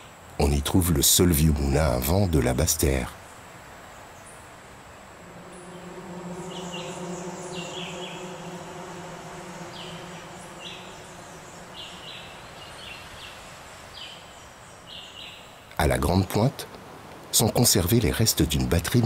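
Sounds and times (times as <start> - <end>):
low buzzing hum: 4.7 - 14.3.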